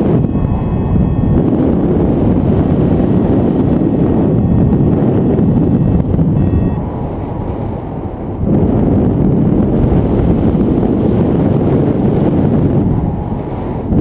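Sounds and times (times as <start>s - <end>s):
wind rushing over microphone: 0.0s - 14.0s.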